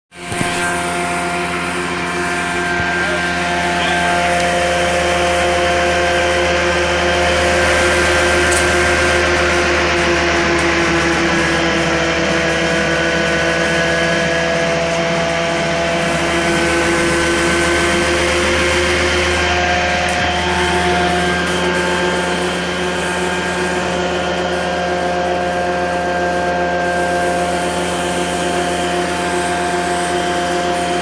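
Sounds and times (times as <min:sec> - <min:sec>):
carpet cleaning machine running: 0:00.1 - 0:31.0.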